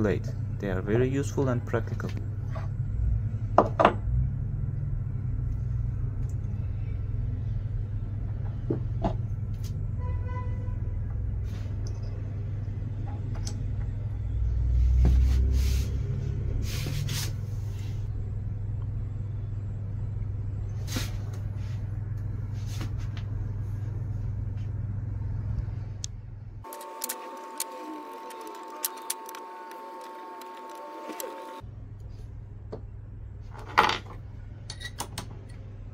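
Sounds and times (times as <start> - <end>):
lathe rumbling: 26.7 - 31.6.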